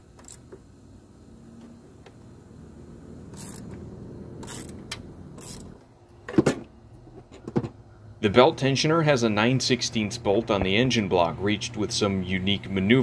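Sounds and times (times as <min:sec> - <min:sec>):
low steady rumble: 0:00.6 - 0:13.0
socket wrench scraping and clicking: 0:03.3 - 0:03.8, 0:04.4 - 0:05.8.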